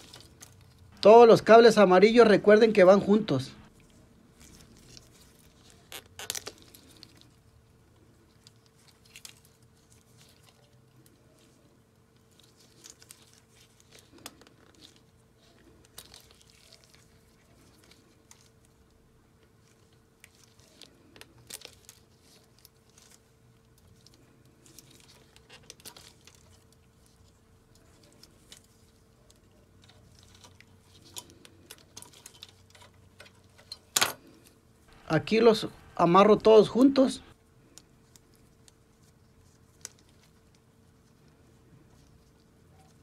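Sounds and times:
wire stripper clicks and crinkles: 3.8s - 7.4s.

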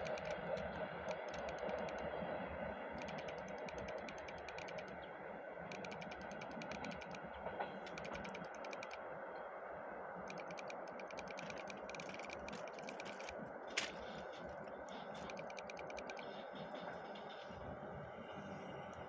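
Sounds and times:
rapid high clicking: 0.0s - 2.2s, 2.9s - 5.0s, 5.7s - 7.2s, 7.8s - 9.0s, 10.2s - 16.4s
faint electric train rumble: 0.0s - 19.0s.

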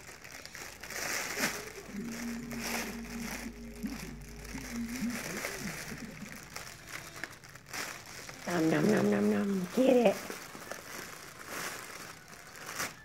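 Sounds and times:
plastic packaging crinkling: 0.0s - 13.0s
person humming: 1.3s - 7.3s.

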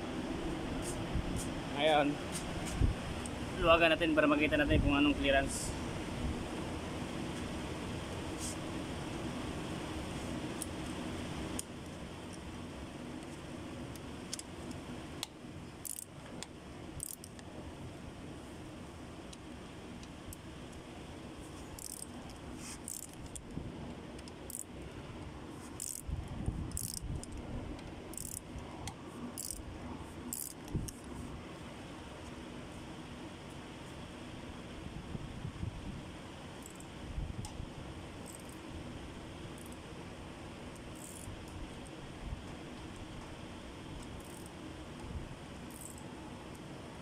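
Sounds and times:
steady background hum: 0.0s - 47.0s.

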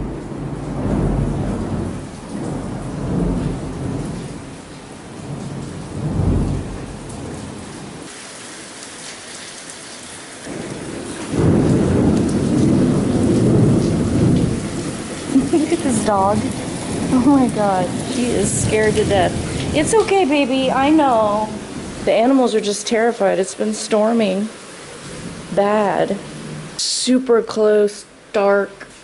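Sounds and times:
rolling thunder: 0.0s - 8.1s, 10.5s - 22.3s, 24.9s - 26.8s
steady rain: 0.0s - 29.0s.

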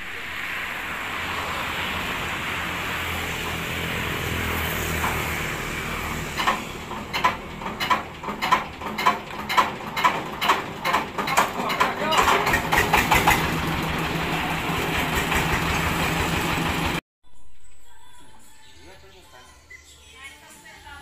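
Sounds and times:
steady hiss: 0.0s - 3.0s
diesel engine chuffing: 2.2s - 17.0s.

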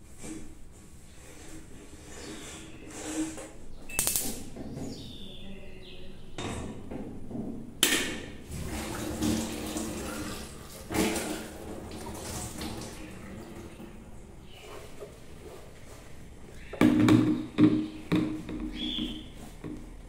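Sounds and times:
running water: 8.5s - 16.2s.

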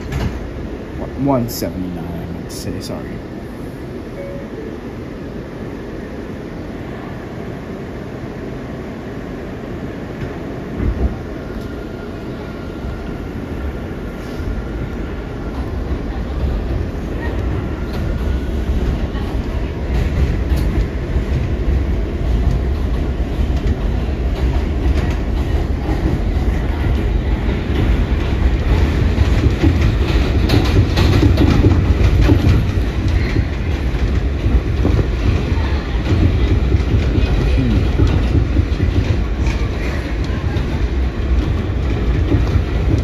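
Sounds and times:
subway train rolling past: 0.0s - 43.0s
wheels clacking over rail joints: 15.8s - 43.0s.

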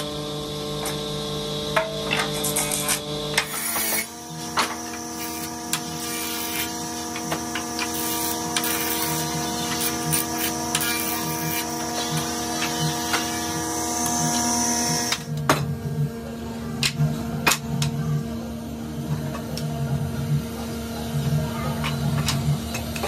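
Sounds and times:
jointer-planer motor hum: 0.0s - 15.4s.

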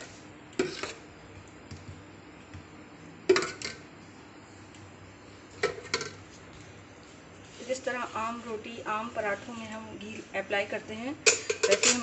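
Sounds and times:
utensil clinking on metal container: 11.3s - 12.0s.

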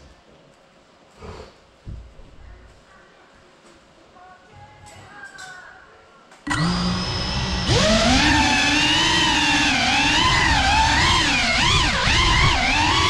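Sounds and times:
drone motors whining: 6.5s - 13.0s.

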